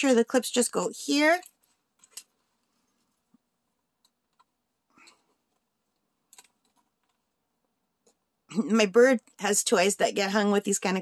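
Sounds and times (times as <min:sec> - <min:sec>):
soft rustle: 0:01.4 - 0:03.8.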